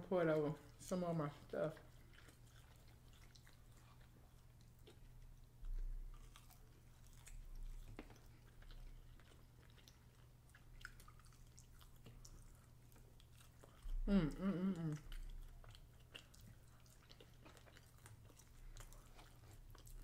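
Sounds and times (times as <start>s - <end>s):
quiet chewing: 0.1s - 20.0s.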